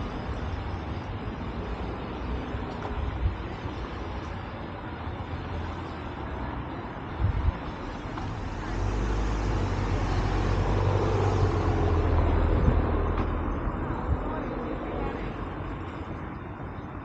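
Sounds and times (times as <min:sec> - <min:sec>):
car passing at low speed: 0:07.2 - 0:16.5.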